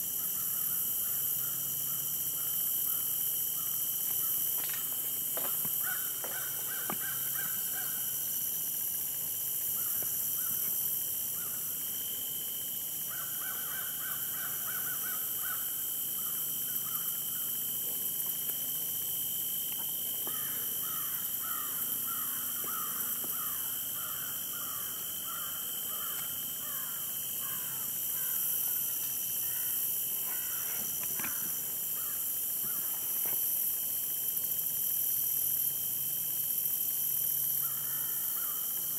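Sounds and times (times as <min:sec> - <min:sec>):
high-pitched insect drone: 0:00.0 - 0:38.9
crows cawing: 0:05.8 - 0:08.1, 0:13.1 - 0:15.7, 0:16.8 - 0:17.2, 0:20.3 - 0:28.5, 0:29.4 - 0:32.9, 0:37.6 - 0:38.6.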